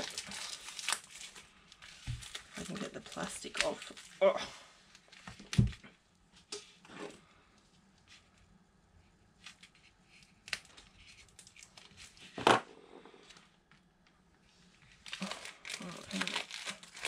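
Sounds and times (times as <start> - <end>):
plastic wrap clicks and crinkles: 0.0 - 4.2, 9.4 - 12.4, 14.8 - 17.0.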